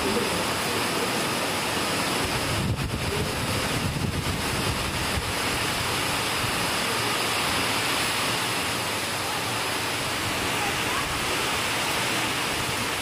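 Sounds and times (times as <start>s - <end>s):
heavy rain falling: 0.0s - 13.0s
wind buffeting microphone: 2.2s - 6.8s.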